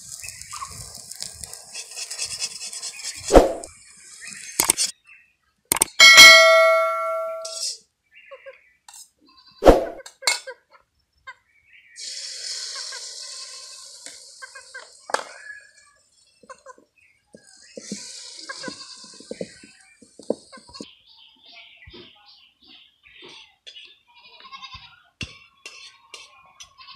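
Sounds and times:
hiss: 0:00.0 - 0:04.6, 0:12.0 - 0:16.3, 0:17.5 - 0:19.6
metal kitchenware clanging on wok: 0:06.0 - 0:07.7.

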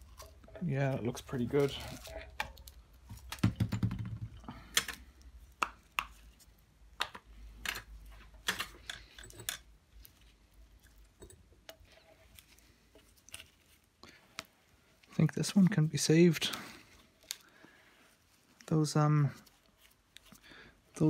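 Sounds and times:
metallic clicks and clinks: 0:08.5 - 0:09.7.

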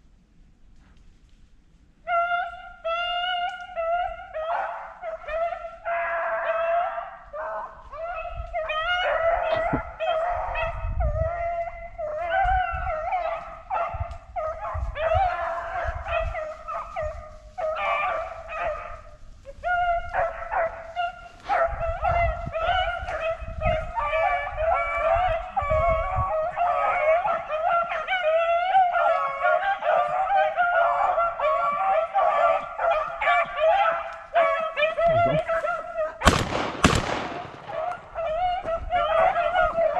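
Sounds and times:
dogs baying: 0:02.1 - 0:39.9.

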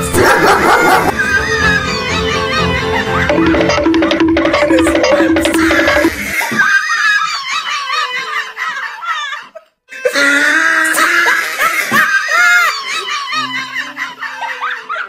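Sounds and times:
high-pitched laughing: 0:00.2 - 0:15.0
music with low steady notes: 0:01.1 - 0:06.3.

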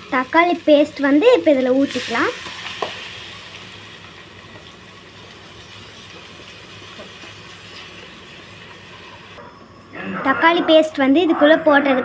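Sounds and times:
vegetables sizzling in oil: 0:00.0 - 0:09.4.

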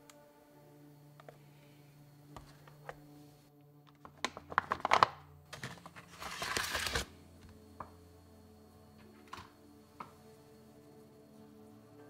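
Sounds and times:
soft background music: 0:00.0 - 0:12.0
plastic bag crinkling: 0:04.0 - 0:07.1.

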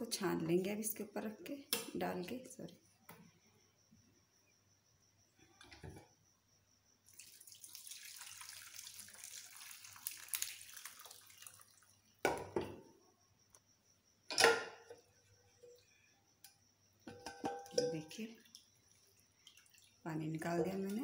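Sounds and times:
hot liquid pouring through strainer: 0:07.1 - 0:12.2, 0:17.3 - 0:20.1.

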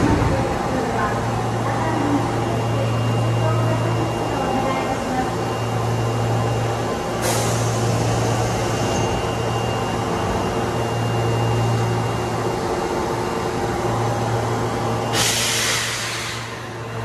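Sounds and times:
train equipment humming: 0:00.0 - 0:17.0
compressed air hissing: 0:15.1 - 0:16.5.

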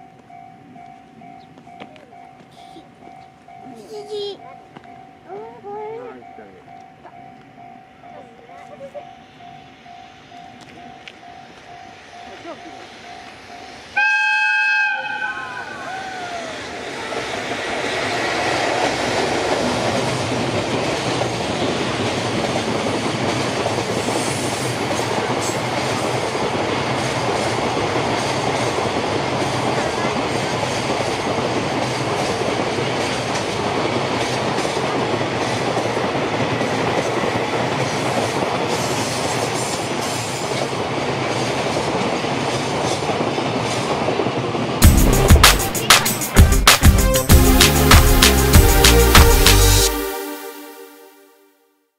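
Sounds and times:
rail clicks: 0:06.2 - 0:14.0, 0:15.9 - 0:49.8
train wheels rumbling on rail: 0:06.6 - 0:49.8
locomotive horn: 0:14.0 - 0:15.8.

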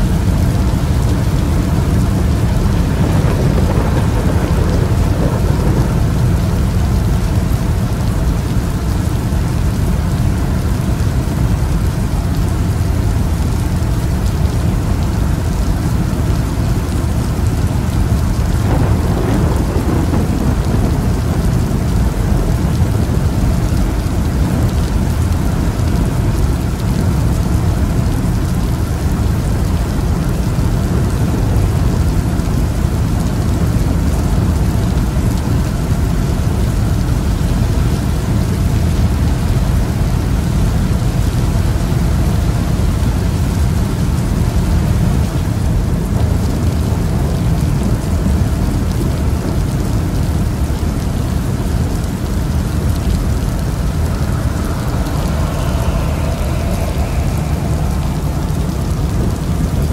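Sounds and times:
road and tyre noise: 0:00.0 - 0:59.9
faint rising whine: 0:51.9 - 0:59.9.

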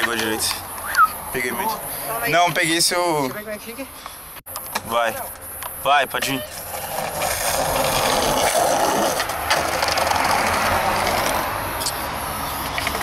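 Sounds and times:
skateboard wheels rolling on concrete: 0:04.5 - 0:13.0
skateboard clacks: 0:06.2 - 0:11.4.

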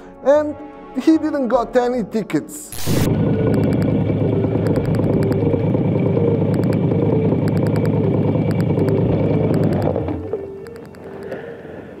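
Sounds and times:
motorcycle engine idling: 0:03.2 - 0:10.6.

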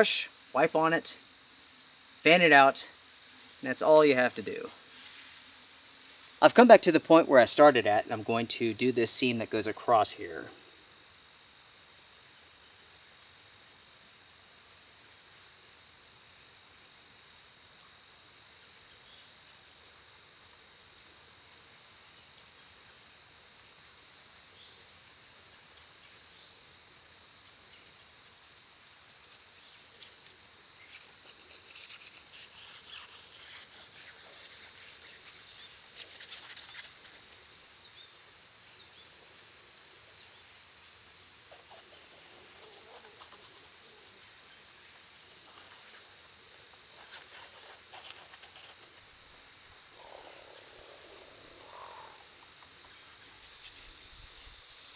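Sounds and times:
insects trilling: 0:00.0 - 0:54.9
faint rustles and ticks: 0:29.3 - 0:37.5, 0:40.8 - 0:49.2.

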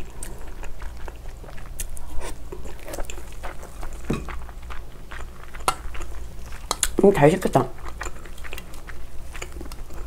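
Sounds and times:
wet chewing: 0:00.0 - 0:10.0.

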